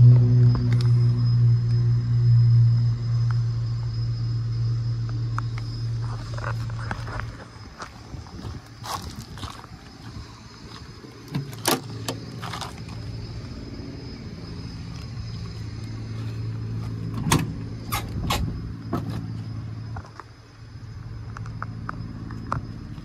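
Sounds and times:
low vehicle engine hum: 0:00.0 - 0:23.0
truck door unlatching and opening: 0:11.3 - 0:12.3, 0:17.1 - 0:19.2.

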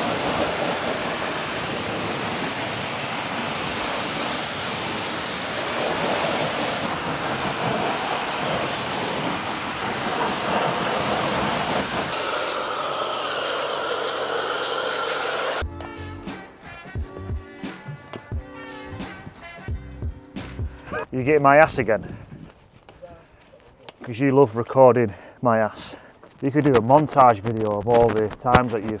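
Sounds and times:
pressure washer spraying: 0:00.0 - 0:15.6.

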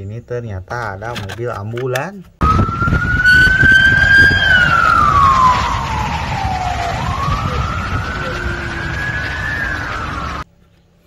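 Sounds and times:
low rumble: 0:02.4 - 0:10.4
ambulance siren wailing: 0:02.4 - 0:10.5.

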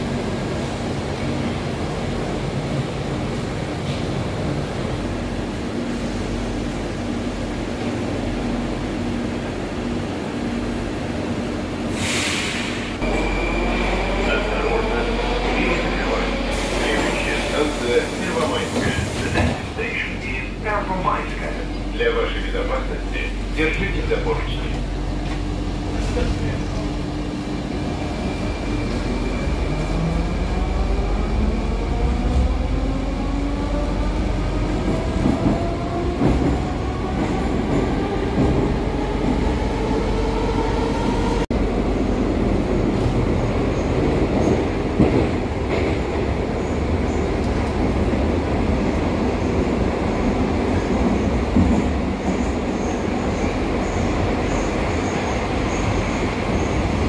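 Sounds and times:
train rumbling on rails: 0:00.0 - 0:57.0.

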